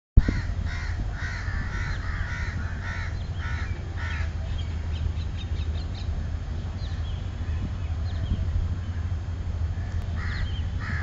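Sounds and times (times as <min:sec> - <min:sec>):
bird calling: 0:00.2 - 0:06.2, 0:09.8 - 0:11.0
steady low rumble: 0:00.2 - 0:11.0.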